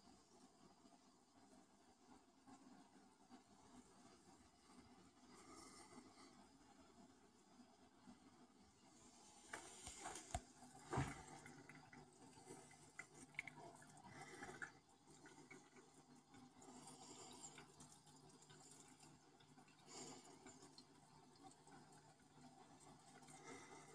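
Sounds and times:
faint low hum: 0.0 - 23.9
water splashing and dripping: 10.3 - 16.0.

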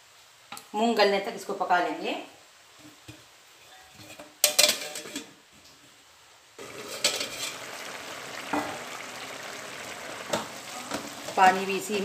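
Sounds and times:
metal clank on a pot: 4.0 - 5.3, 6.9 - 7.6
curry bubbling in a pot: 6.6 - 12.0.

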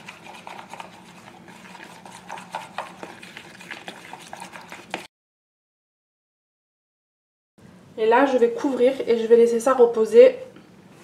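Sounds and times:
spoon tapping and scraping bowl: 0.0 - 5.1.

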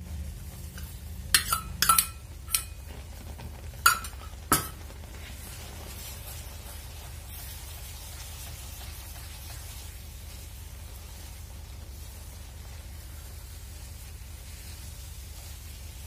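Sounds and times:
metal spatula clinking on pan: 0.8 - 2.8.

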